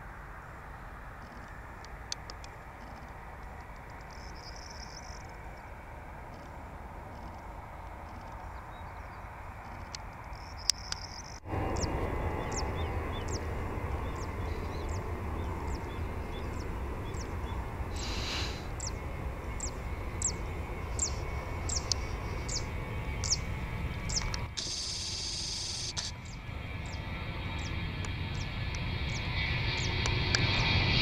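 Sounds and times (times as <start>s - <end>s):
jet engines rumbling: 0.0s - 31.0s
bird calling: 8.1s - 27.0s.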